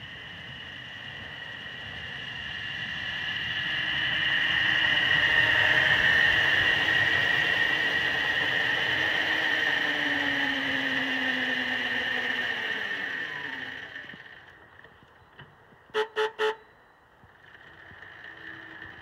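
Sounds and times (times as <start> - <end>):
model locomotive motor whine: 0.0 - 15.3, 15.9 - 19.0.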